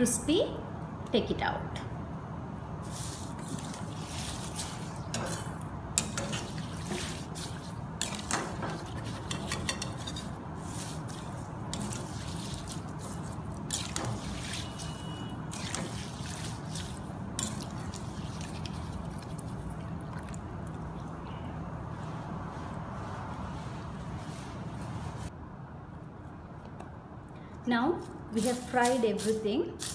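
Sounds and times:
metal ladle scraping pan: 3.4s - 16.7s
leaves frying in hot oil: 28.4s - 29.9s.

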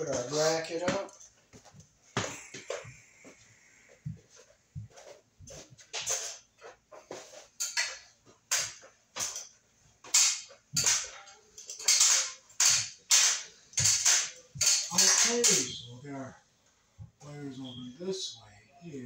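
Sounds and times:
footsteps climbing metal ladder: 0.0s - 15.9s.

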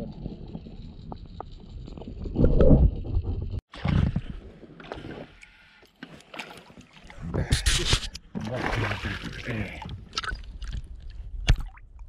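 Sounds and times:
muffled underwater rumble and sloshing: 0.0s - 5.4s
soft water sounds: 3.7s - 12.0s.

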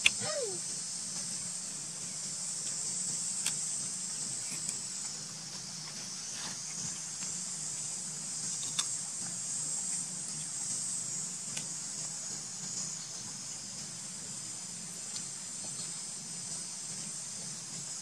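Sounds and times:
insects chorus: 0.0s - 18.0s
low steady hum: 0.0s - 18.0s.

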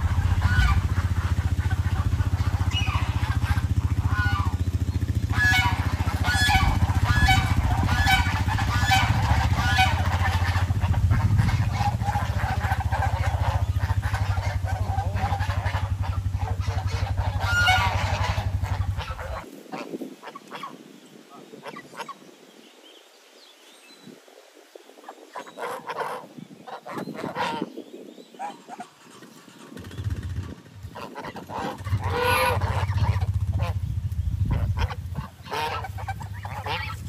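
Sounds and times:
tractor engine running: 0.0s - 19.4s, 29.5s - 37.0s
geese honking: 0.0s - 20.8s, 25.3s - 29.8s, 30.8s - 37.0s.

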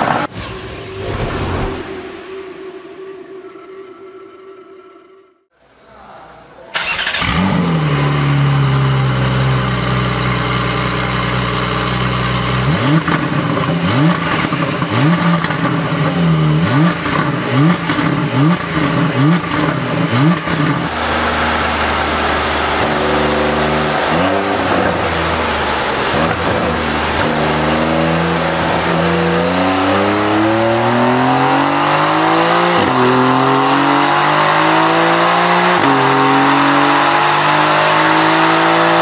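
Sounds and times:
car engine idling: 6.8s - 31.2s
car engine revving: 6.8s - 39.0s.

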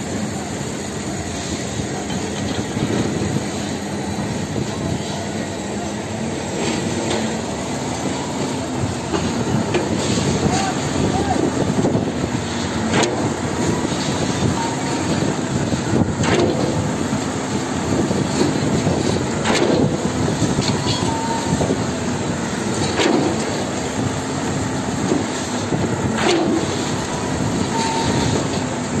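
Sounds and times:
concrete pump truck running: 0.0s - 29.0s.

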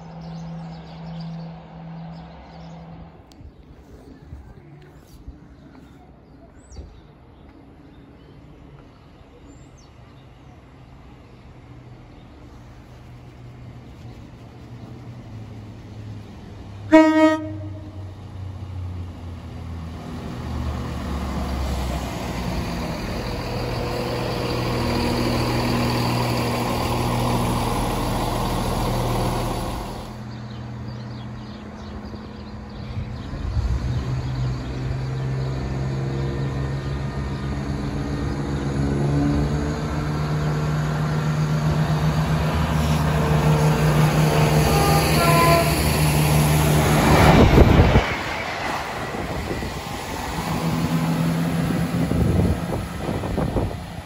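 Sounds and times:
diesel train engine approaching: 0.0s - 5.0s, 5.6s - 54.0s
train engine and wheels rumbling: 0.0s - 54.0s
train horn toot: 16.9s - 18.1s, 44.4s - 46.1s.

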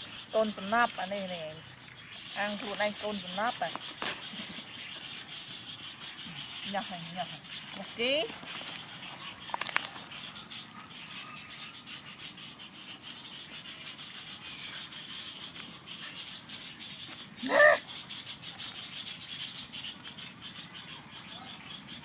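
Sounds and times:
insects chirring: 0.0s - 22.0s
animal squealing: 17.4s - 17.9s.

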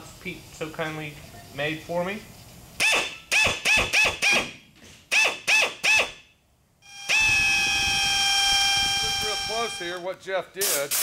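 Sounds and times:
power drill whining: 6.8s - 10.0s.

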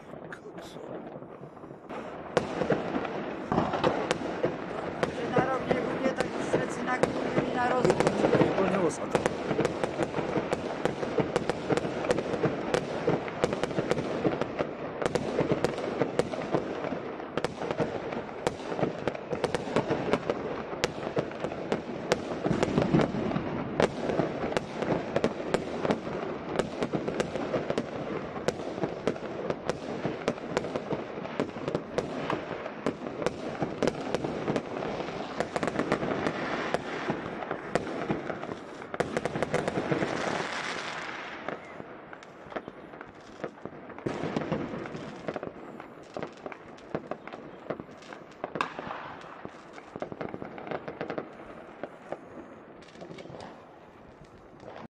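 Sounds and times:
fireworks bangs and crackles: 0.0s - 54.9s.

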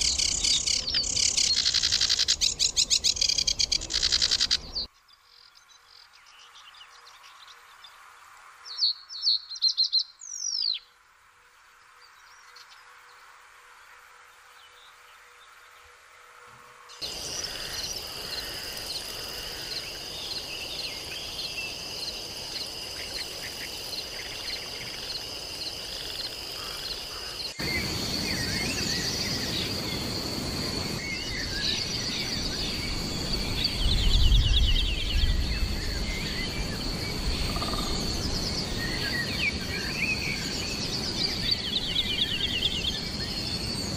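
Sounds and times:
insect trill: 0.0s - 10.5s, 11.3s - 43.9s
songbirds chirping: 0.0s - 43.9s.

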